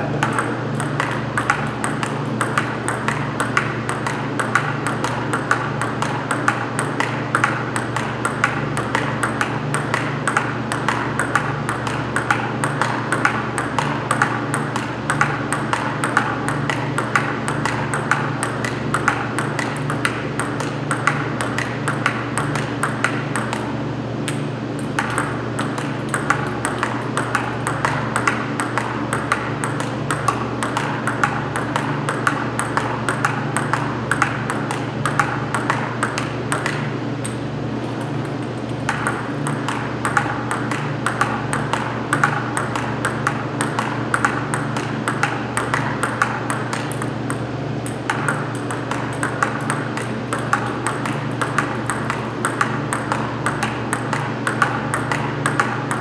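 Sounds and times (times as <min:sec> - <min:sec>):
steady low hum: 0:00.0 - 0:56.0
table tennis ball clicks: 0:00.0 - 0:56.0.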